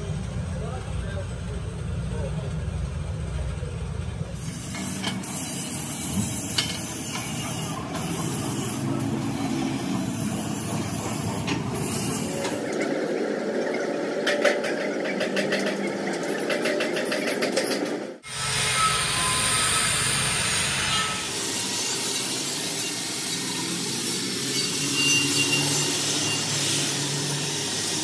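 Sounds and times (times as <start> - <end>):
steady workshop hiss: 4.3 - 12.4, 18.4 - 28.0
hand tool scraping paint on metal: 4.4 - 12.9.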